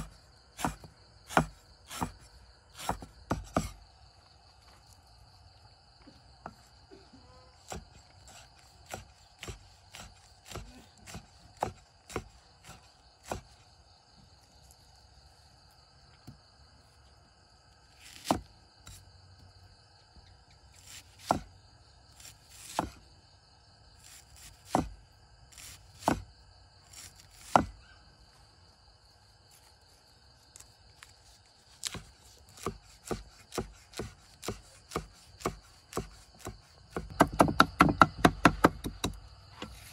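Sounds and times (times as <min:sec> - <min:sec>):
cleaver chopping on wooden block: 0:00.0 - 0:03.8, 0:07.7 - 0:13.6, 0:18.1 - 0:18.5, 0:20.8 - 0:21.5, 0:22.2 - 0:23.0, 0:24.1 - 0:25.0, 0:25.6 - 0:26.3, 0:26.9 - 0:27.8, 0:31.7 - 0:39.9.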